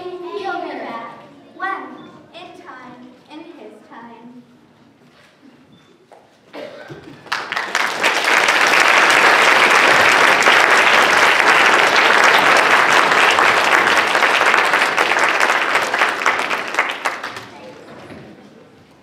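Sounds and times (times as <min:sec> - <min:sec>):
audience applause: 0:07.1 - 0:17.8.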